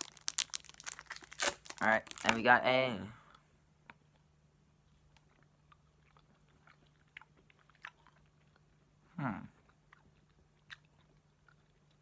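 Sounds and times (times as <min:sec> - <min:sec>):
person chewing candy: 0:00.0 - 0:02.5, 0:03.3 - 0:12.0
person humming closed-mouth: 0:09.1 - 0:09.5.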